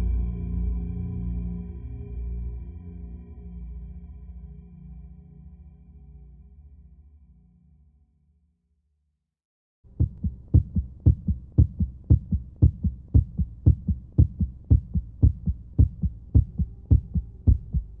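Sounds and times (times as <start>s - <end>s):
heartbeat: 9.9s - 18.0s
faint steady hum: 10.0s - 18.0s.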